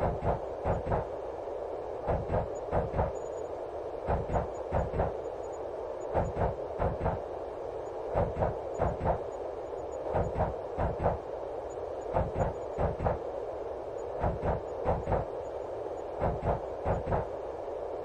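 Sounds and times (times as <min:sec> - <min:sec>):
train running rumble: 0:00.0 - 0:01.1, 0:02.1 - 0:03.1, 0:04.1 - 0:05.2, 0:06.1 - 0:07.2, 0:08.2 - 0:09.3, 0:10.1 - 0:11.2, 0:12.1 - 0:13.2, 0:14.2 - 0:15.3, 0:16.2 - 0:17.3.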